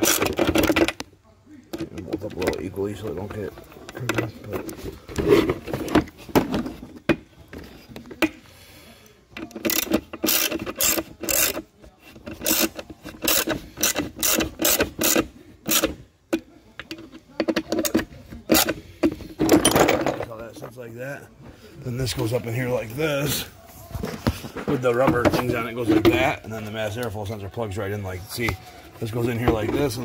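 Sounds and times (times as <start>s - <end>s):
socket ratchet clicking: 12.3s - 16.0s.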